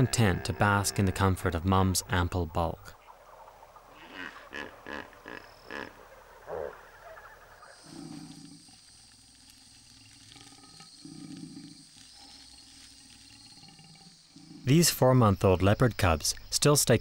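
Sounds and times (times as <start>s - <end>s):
hippopotamus grunting calls: 3.9s - 9.2s, 10.2s - 14.8s.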